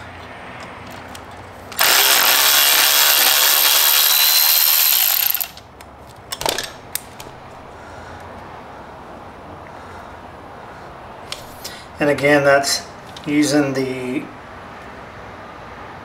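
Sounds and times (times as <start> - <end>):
handheld power tool running: 1.7 - 5.6.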